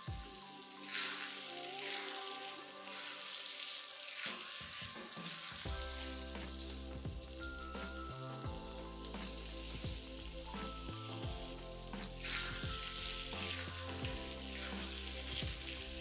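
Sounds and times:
food sizzling in a pan: 0.0s - 16.0s
spatula stirring food: 0.8s - 5.7s.

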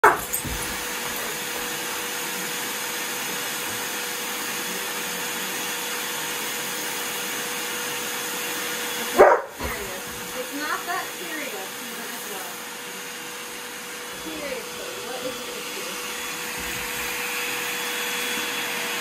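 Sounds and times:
dog barking: 0.0s - 0.4s, 9.1s - 9.6s
vacuum cleaner running: 0.0s - 19.0s.

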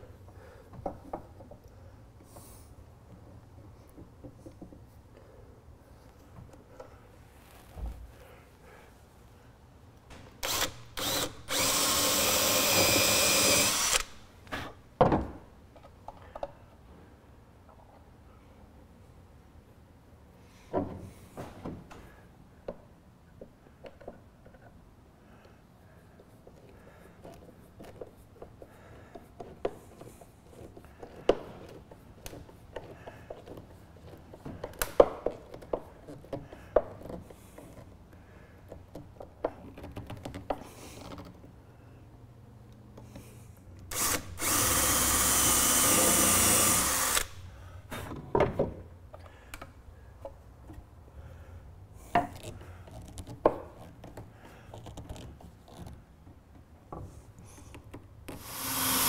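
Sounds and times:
power tool whirring: 10.4s - 14.2s, 43.9s - 47.4s, 58.3s - 59.0s.

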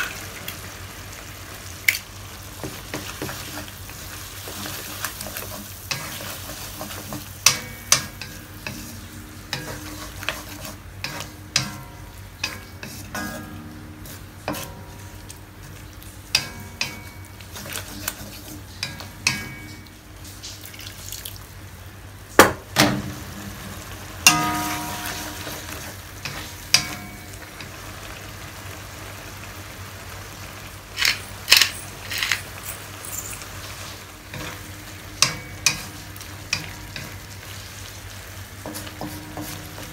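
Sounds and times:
food sizzling in a wok: 0.0s - 39.9s
wooden spatula stirring and scraping: 2.6s - 20.6s, 38.5s - 39.9s
spatula knocking against wok: 5.3s - 8.9s, 9.5s - 13.8s.

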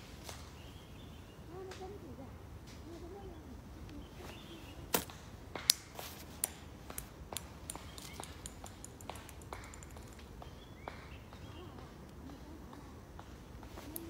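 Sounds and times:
sharp clicks: 5.7s - 10.4s.

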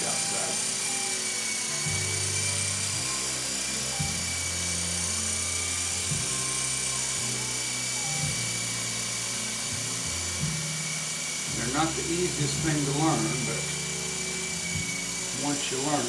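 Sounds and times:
toy helicopter rotor whine: 0.0s - 16.0s.

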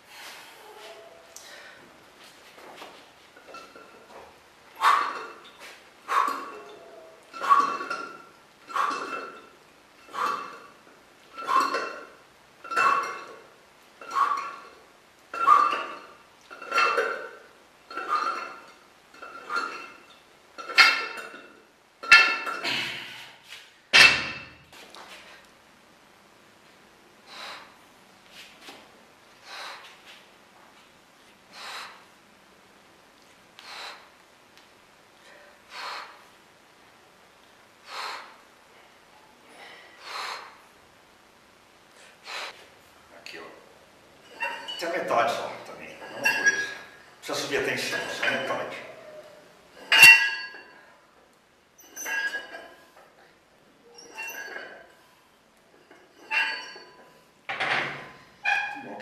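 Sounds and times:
weight plates clanking on barbell: 6.1s - 9.5s, 11.4s - 13.4s, 14.0s - 22.8s, 44.2s - 49.2s, 49.8s - 50.8s, 51.8s - 52.9s, 54.0s - 55.0s, 55.8s - 58.8s.

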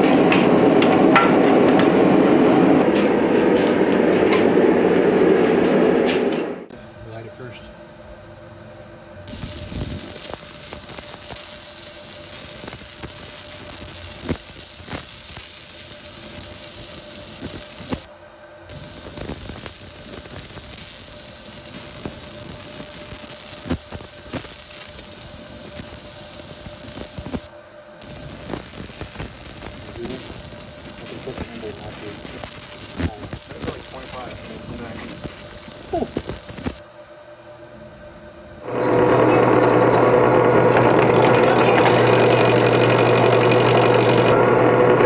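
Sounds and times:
laser engraver hissing and ticking: 9.3s - 18.1s, 18.7s - 36.8s, 38.9s - 39.3s.

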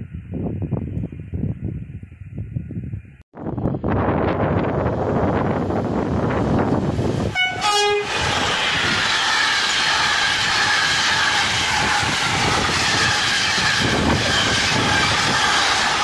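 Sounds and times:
two-note locomotive horn: 7.3s - 8.2s
train wheels clattering over rail joints: 8.1s - 16.0s.

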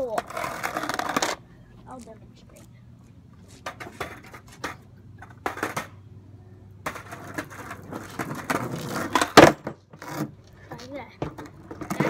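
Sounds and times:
skateboard clacks: 0.0s - 1.4s, 3.6s - 6.0s, 6.8s - 12.0s
skateboard smacking down: 0.0s - 1.4s, 3.6s - 6.0s, 6.8s - 12.0s
skateboard wheels rolling and scraping: 0.0s - 1.4s, 3.4s - 6.1s, 6.7s - 12.0s.

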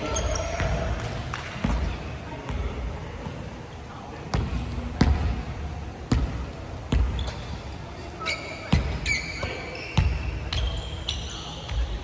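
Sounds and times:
sneakers squeaking on floor: 0.0s - 2.1s, 6.1s - 12.0s.

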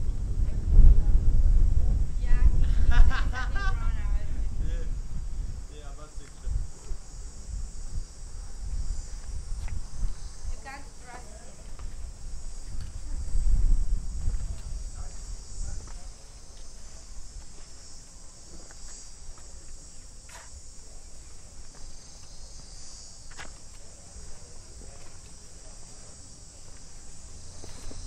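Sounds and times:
low rumble: 0.0s - 10.1s
insects buzzing: 0.0s - 28.0s.

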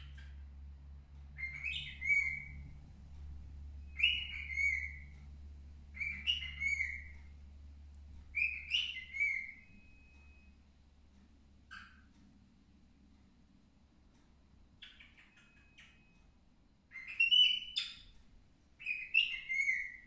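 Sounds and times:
low hum: 0.0s - 14.8s
cockatiel whistling: 1.4s - 2.6s, 3.9s - 5.1s, 6.0s - 7.2s, 8.3s - 10.4s, 16.9s - 18.0s, 18.8s - 20.0s.

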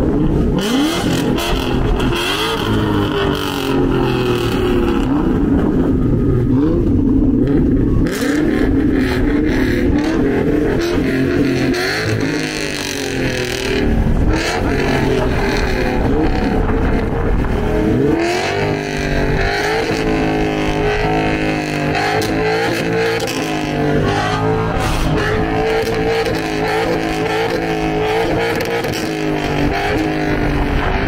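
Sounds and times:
car engine revving: 0.0s - 31.0s.

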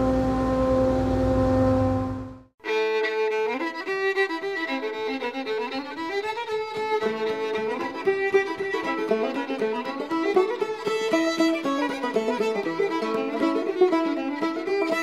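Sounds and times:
fiddle music: 2.6s - 15.0s.

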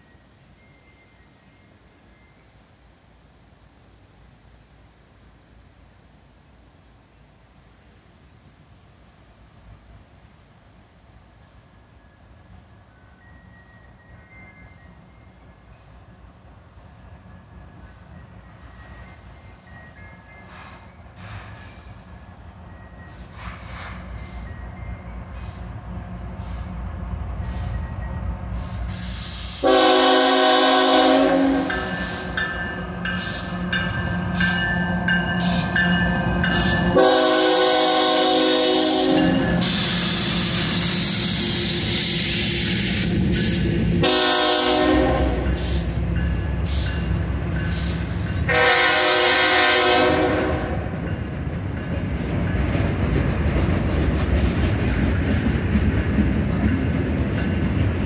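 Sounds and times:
freight train rumbling past: 0.0s - 58.0s
train horn blasts: 29.6s - 32.4s, 36.8s - 40.2s, 44.0s - 45.7s, 48.4s - 51.0s.

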